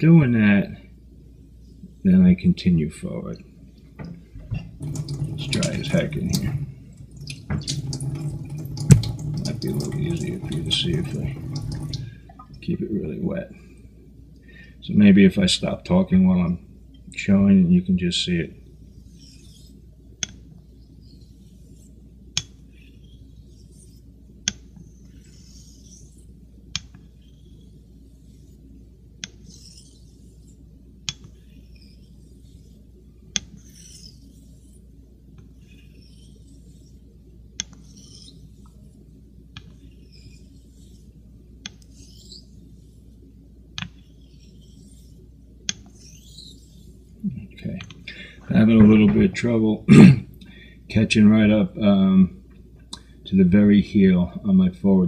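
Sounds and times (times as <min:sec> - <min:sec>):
razor swishing across whetstone: 0:18.8 - 0:20.0, 0:21.0 - 0:47.3.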